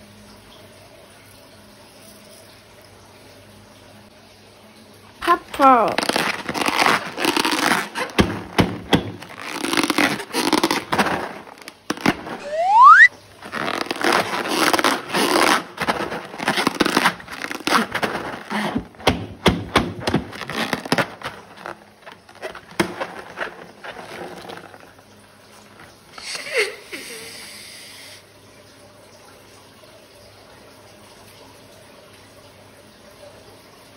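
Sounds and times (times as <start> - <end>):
slime squelching by hand: 5.2 - 26.0
rising squeal: 12.4 - 13.1.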